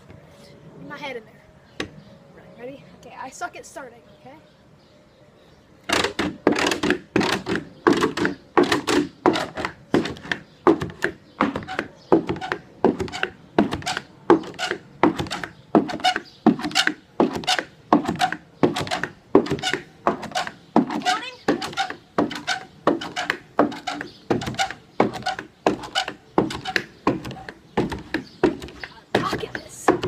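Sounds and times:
pogo stick bouncing on wooden deck: 0:05.9 - 0:30.0.

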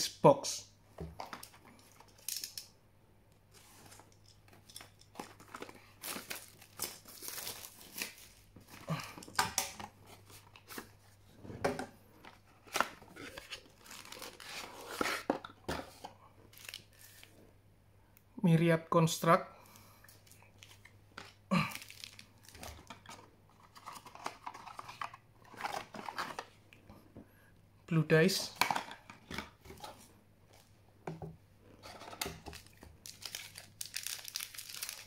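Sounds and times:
plastic wrap crinkling and tearing: 0:05.1 - 0:09.0, 0:12.6 - 0:15.3, 0:16.5 - 0:17.3, 0:20.3 - 0:26.5, 0:31.8 - 0:35.0.

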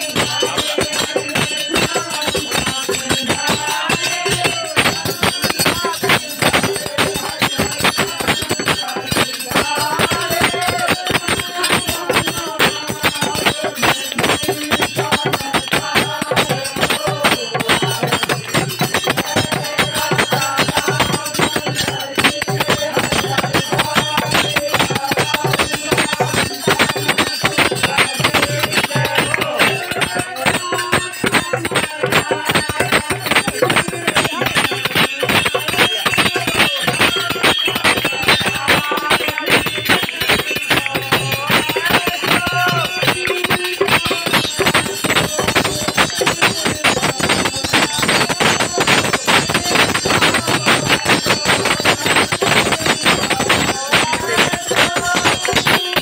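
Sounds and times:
fast devotional percussion: 0:00.0 - 0:56.0.

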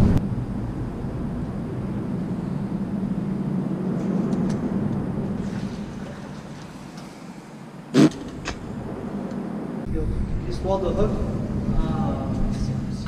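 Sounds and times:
vehicle rumbling over bridge: 0:00.0 - 0:07.0.

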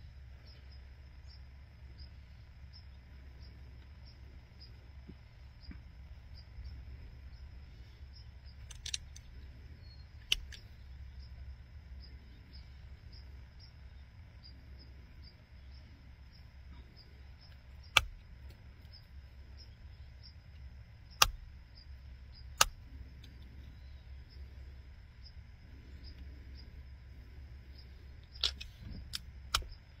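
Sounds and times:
faint high insect-like trill: 0:00.0 - 0:30.0
flint flaking clicks: 0:08.5 - 0:09.4, 0:22.5 - 0:23.5, 0:28.2 - 0:29.8.

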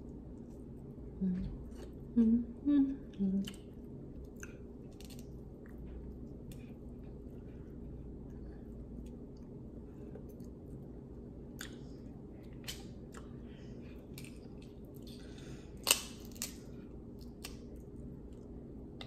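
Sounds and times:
crab shells cracking: 0:15.8 - 0:16.6.

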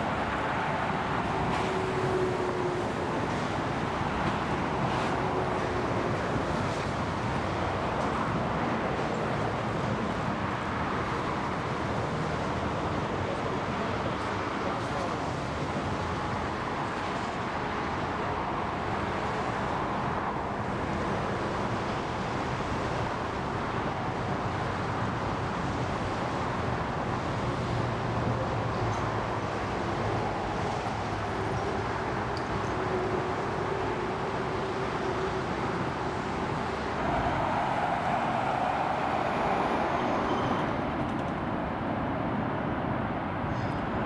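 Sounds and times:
jet engines rushing: 0:26.8 - 0:44.0.

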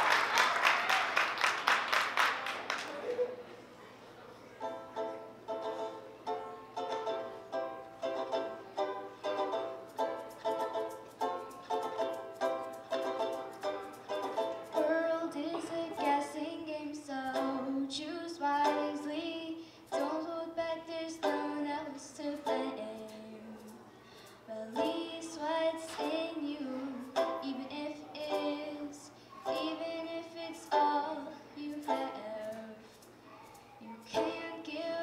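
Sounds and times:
strummed banjo: 0:04.6 - 0:16.6, 0:17.2 - 0:17.8, 0:18.5 - 0:19.3, 0:19.9 - 0:23.7, 0:24.6 - 0:32.7, 0:34.0 - 0:35.0
girl singing: 0:14.7 - 0:23.8, 0:24.5 - 0:35.0.

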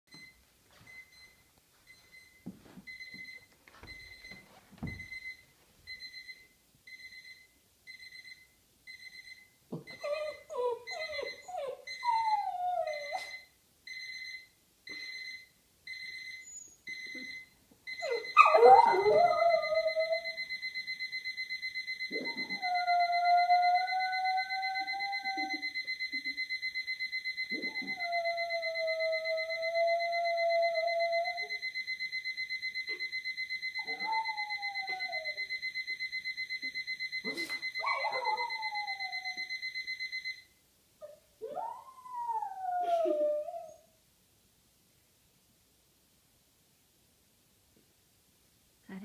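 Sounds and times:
electronic alarm beeping: 0:00.1 - 0:10.0, 0:12.9 - 0:40.5
dog whimpering and yipping: 0:09.9 - 0:13.4, 0:18.0 - 0:20.4, 0:22.1 - 0:25.8, 0:33.8 - 0:35.4, 0:37.2 - 0:39.5, 0:41.0 - 0:43.9
dog howling: 0:18.0 - 0:20.3, 0:22.1 - 0:25.7, 0:33.8 - 0:35.4, 0:41.4 - 0:43.9.

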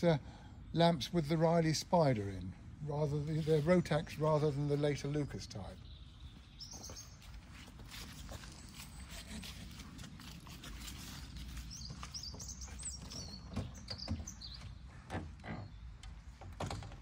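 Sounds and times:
small bird chirping: 0:05.8 - 0:09.5, 0:11.0 - 0:14.9.

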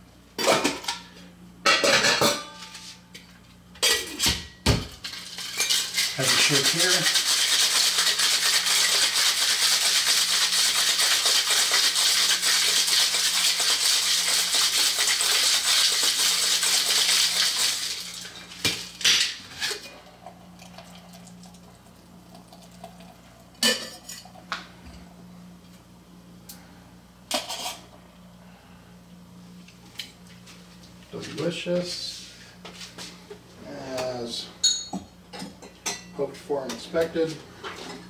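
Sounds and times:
ice rattling in cocktail shaker: 0:05.1 - 0:18.3.

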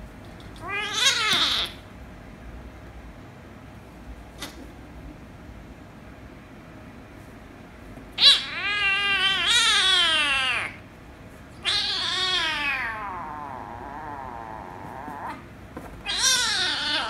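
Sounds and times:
kitten angry meows: 0:00.6 - 0:01.8, 0:08.2 - 0:10.8, 0:11.6 - 0:17.0.

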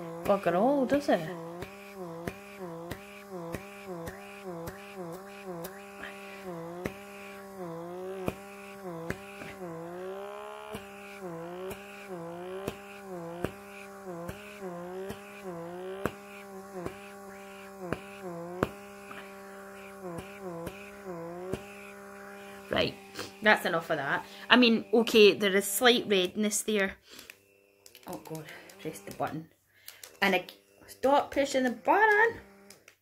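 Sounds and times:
pore vacuum motor hum: 0:00.0 - 0:33.0
small clicks: 0:27.1 - 0:30.6, 0:31.3 - 0:33.0.

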